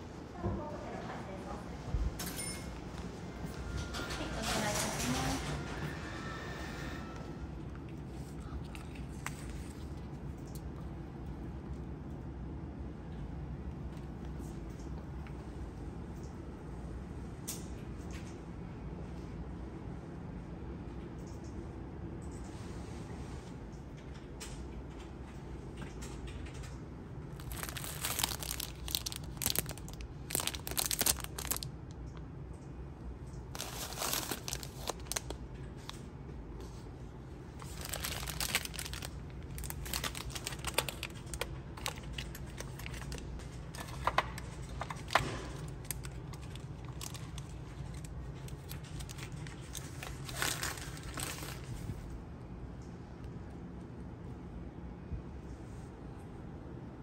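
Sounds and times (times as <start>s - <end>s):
plastic packets crinkling: 27.3s - 31.7s, 33.5s - 36.0s, 37.5s - 51.8s.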